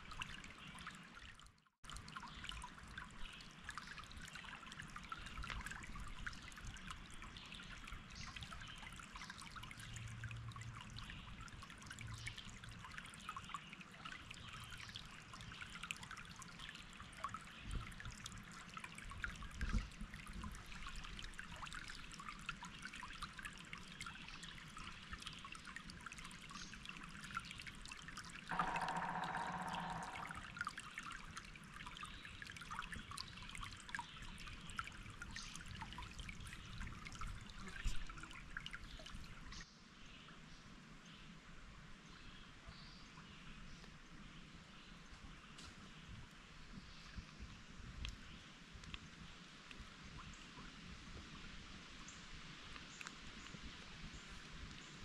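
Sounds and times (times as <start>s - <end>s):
water trickling and splashing: 0.0s - 55.0s
steady pitched tone: 28.5s - 30.6s.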